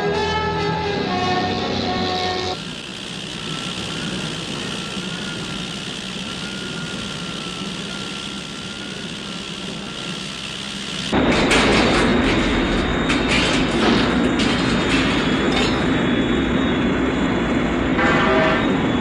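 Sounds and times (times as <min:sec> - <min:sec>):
jet engine roar: 0:00.0 - 0:19.0
faint high whine: 0:02.4 - 0:11.2.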